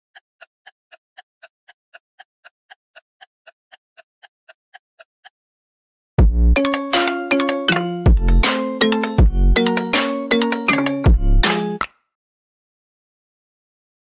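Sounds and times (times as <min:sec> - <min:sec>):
clock-like ticking: 0:00.1 - 0:05.4, 0:06.6 - 0:10.9
chiming mallet music: 0:06.6 - 0:11.8.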